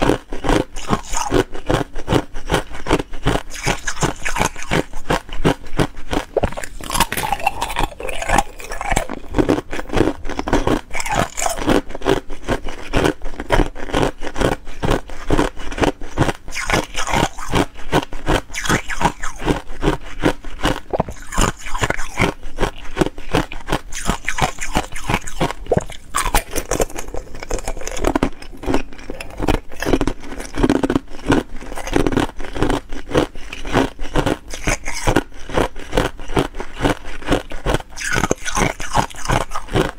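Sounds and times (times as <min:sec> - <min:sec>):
ice cubes being chewed: 0:00.0 - 0:39.9.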